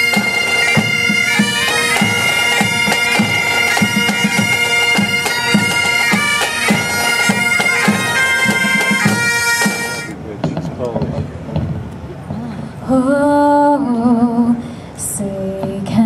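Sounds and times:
bagpipes playing over drones: 0.0 - 10.2
low drum beat: 0.8 - 12.5.

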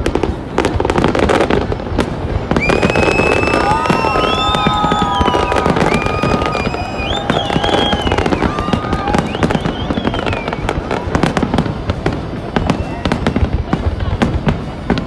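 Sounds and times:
firework shells crackling and popping: 0.0 - 15.0
high firework whistles: 0.7 - 13.8.

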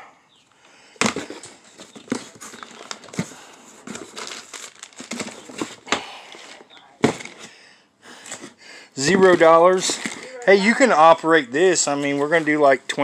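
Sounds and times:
rummaging through boxes: 0.9 - 7.6, 8.2 - 11.1.

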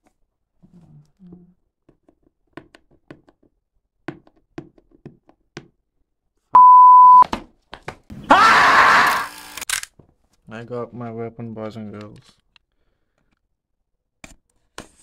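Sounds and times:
electronic beep: 6.6 - 7.2.

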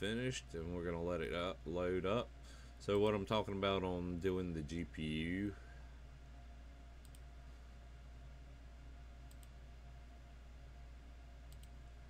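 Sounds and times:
steady low hum: 0.0 - 12.0
computer mouse clicks: 7.0 - 7.3, 9.2 - 9.6, 11.5 - 11.8.

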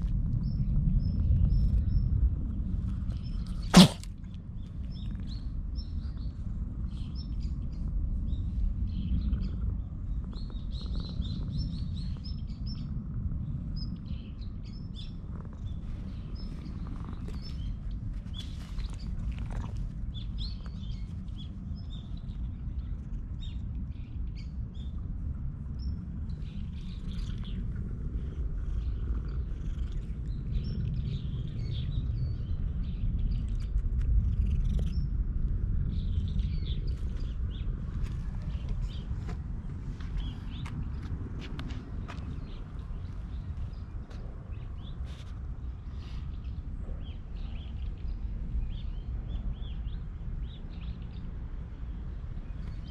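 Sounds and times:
small birds chirping: 2.8 - 25.0, 25.8 - 52.9
cat purring: 26.5 - 31.6.

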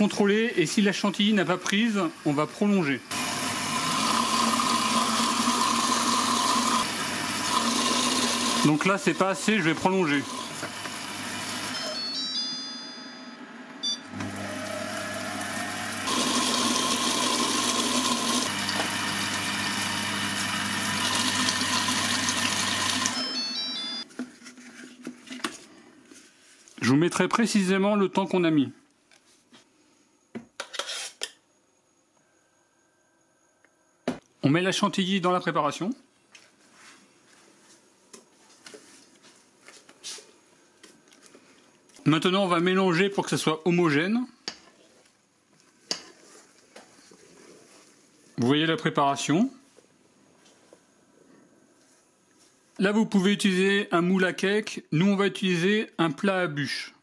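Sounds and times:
food processor motor whirring: 3.1 - 8.8, 9.5 - 11.8, 14.1 - 23.2
short beeps: 11.7 - 14.1
spatula scraping and squelching: 30.6 - 31.3, 45.7 - 48.1.

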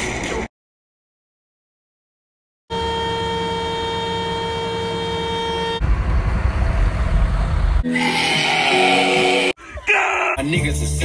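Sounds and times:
steady horn tone: 2.7 - 6.1
low rumbling noise: 5.8 - 9.2.

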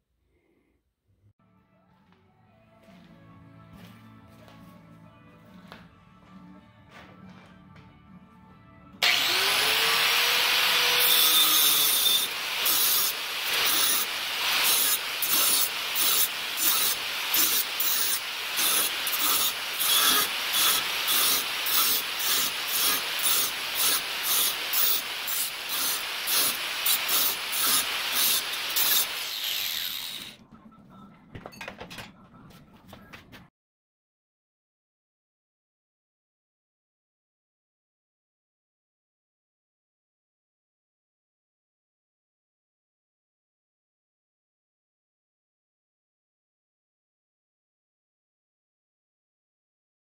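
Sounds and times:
angle grinder grinding steel: 9.0 - 30.4.

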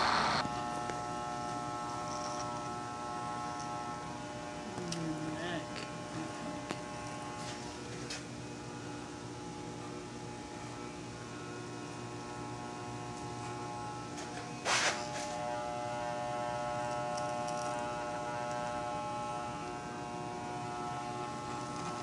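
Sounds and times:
loud scratchy noise: 0.0 - 0.4
hair clippers buzzing: 0.0 - 22.0.

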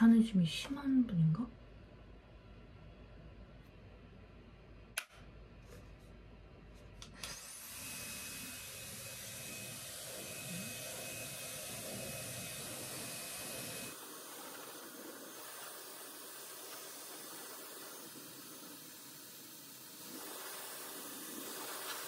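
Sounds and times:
small switch clicks: 4.9 - 5.2
hair dryer blowing: 7.0 - 22.0.

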